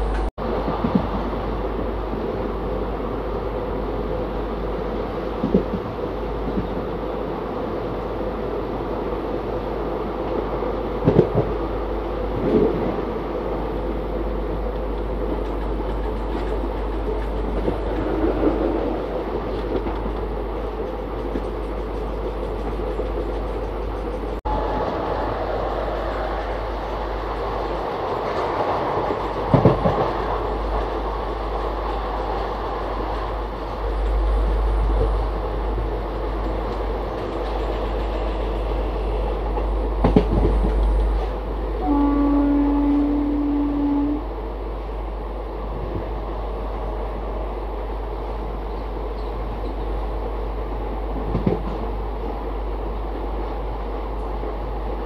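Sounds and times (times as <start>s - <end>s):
train knocks: 0.0s - 1.3s, 5.4s - 6.8s, 11.0s - 11.6s, 14.8s - 44.2s, 51.2s - 52.0s
train rolling rumble: 0.0s - 55.0s.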